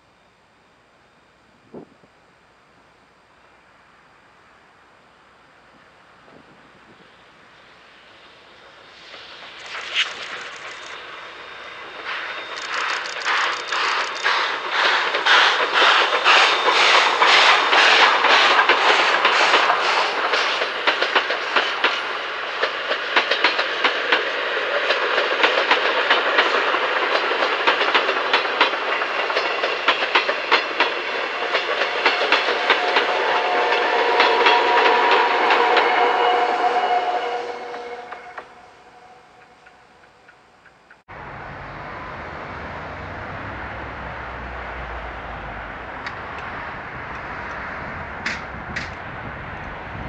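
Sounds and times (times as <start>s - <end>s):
electric locomotive hum: 0.0s - 50.0s
steam locomotive chuffing: 6.3s - 50.0s
train wheels clattering over rail joints: 12.1s - 33.1s.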